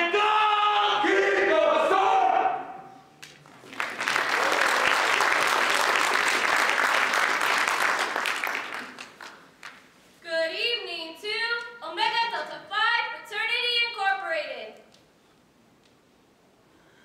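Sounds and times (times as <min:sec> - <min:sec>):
audience applause: 0:03.2 - 0:09.8.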